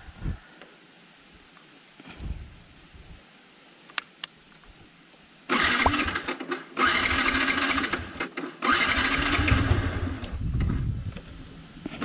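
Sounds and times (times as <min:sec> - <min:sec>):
motorcycle starter cranking engine: 0:05.5 - 0:10.8.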